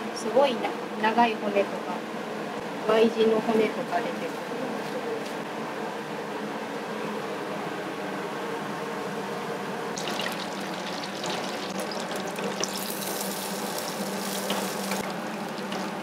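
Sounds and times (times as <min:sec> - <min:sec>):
fish deep-frying in oil: 0:10.0 - 0:16.0.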